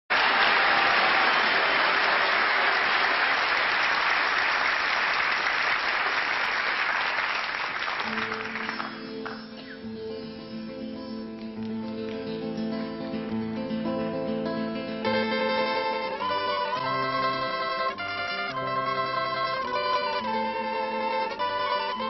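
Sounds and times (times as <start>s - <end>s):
audience applauding: 0.1s - 9.8s, 15.1s - 22.0s
guitar playing: 8.0s - 22.0s.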